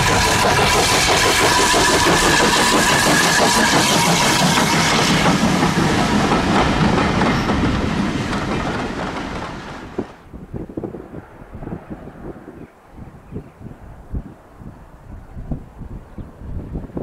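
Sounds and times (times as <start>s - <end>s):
train wheels clattering over rails: 0.0s - 10.3s.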